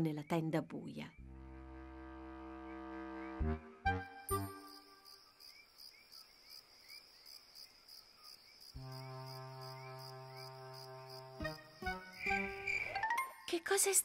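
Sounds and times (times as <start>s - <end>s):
low sustained musical chord: 1.2s - 3.8s
crickets chirping: 4.3s - 14.0s.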